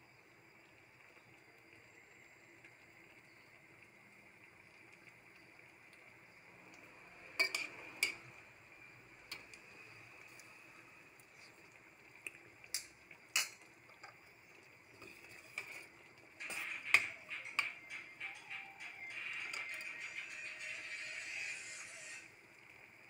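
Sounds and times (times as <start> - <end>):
soup simmering in a pan: 0.0 - 23.0
ladle stirring: 7.3 - 8.4, 11.2 - 20.9
utensil clinking on metal pan: 7.4 - 8.2.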